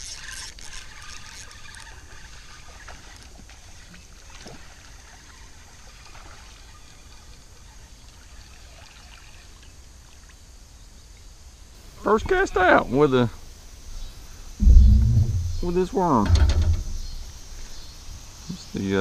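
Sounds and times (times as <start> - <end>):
water trickling and splashing: 0.0 - 10.5
low steady rumble: 13.9 - 17.5.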